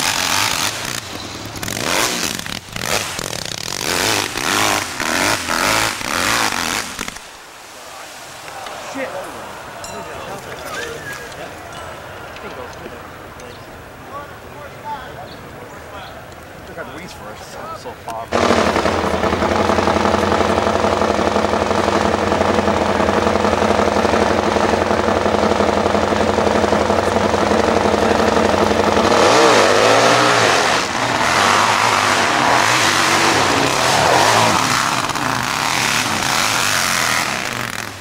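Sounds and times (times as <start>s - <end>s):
motorcycle engine revving: 0.0s - 7.3s, 18.3s - 38.0s.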